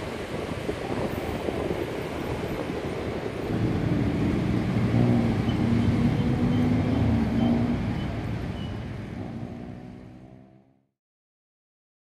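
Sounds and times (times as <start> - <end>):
road noise: 0.0 - 10.9
vehicle engine humming: 3.3 - 10.9.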